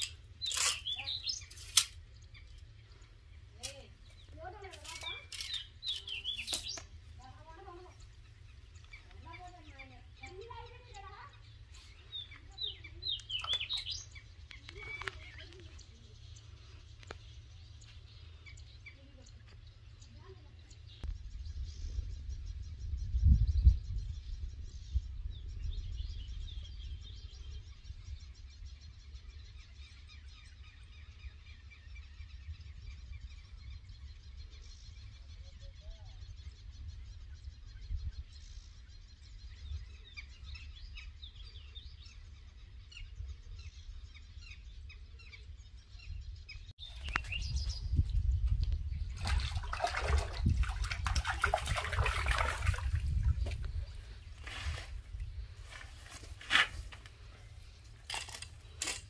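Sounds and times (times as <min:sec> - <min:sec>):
small birds chirping: 0:00.0 - 0:59.0
fish thrashing and splashing: 0:49.2 - 0:53.4.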